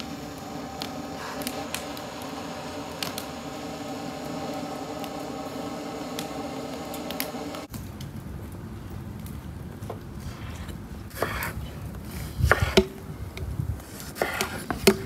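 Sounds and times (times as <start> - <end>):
samovar humming and rushing: 0.0 - 7.7
sharp crackles and clicks: 0.0 - 10.9.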